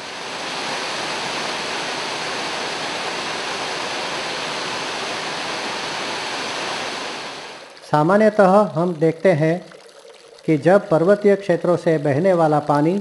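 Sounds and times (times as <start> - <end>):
waterfall rushing: 0.0 - 7.9.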